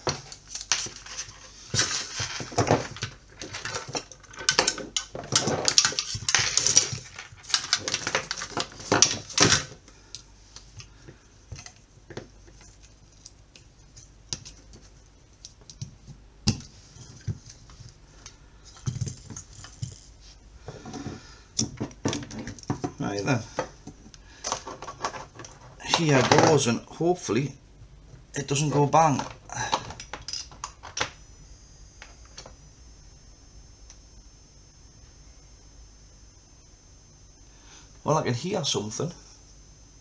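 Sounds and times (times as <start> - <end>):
plastic parts clicking and rattling: 0.0 - 10.2, 29.1 - 31.1.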